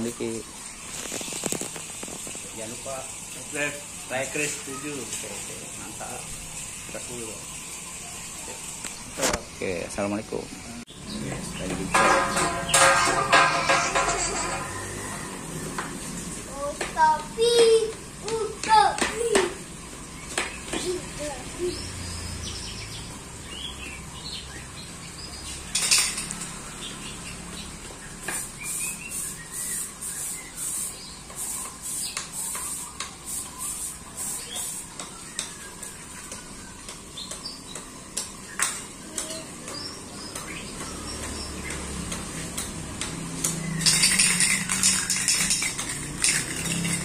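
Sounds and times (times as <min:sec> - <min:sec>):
metal tubes clanking: 0:11.7 - 0:15.0, 0:43.8 - 0:47.0
metal clattering: 0:11.9 - 0:14.7.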